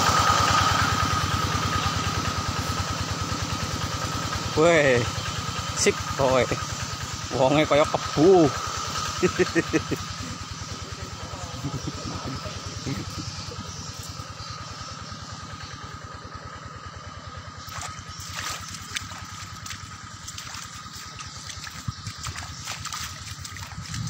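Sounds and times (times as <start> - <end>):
high whine: 0.0 - 24.0
small engine running: 0.0 - 24.0
water trickling: 17.6 - 24.0.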